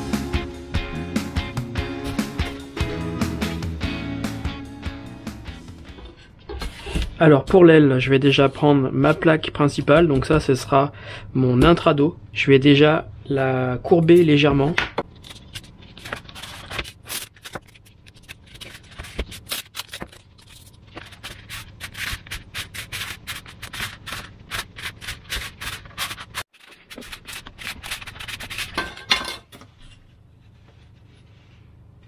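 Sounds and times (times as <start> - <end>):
foam sheet rubbing and scraping: 15.9 - 28.8.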